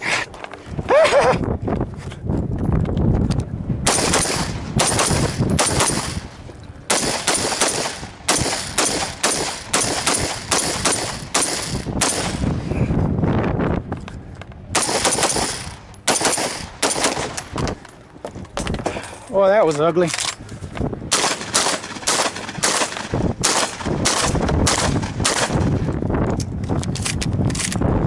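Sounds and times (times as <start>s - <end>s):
rifle shots: 3.8s - 12.5s, 14.7s - 17.6s, 21.1s - 25.9s.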